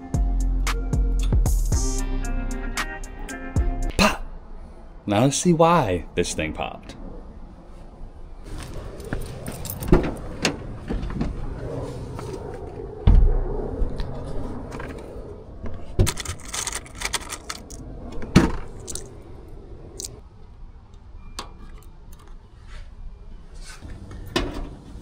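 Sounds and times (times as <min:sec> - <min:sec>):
heavy thump: 0:13.0 - 0:13.5
metal clinking and rattling: 0:16.1 - 0:17.8.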